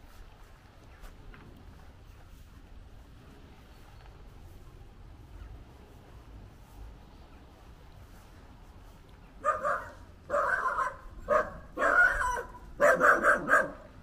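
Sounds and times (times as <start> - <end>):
dog barking: 9.4 - 14.0.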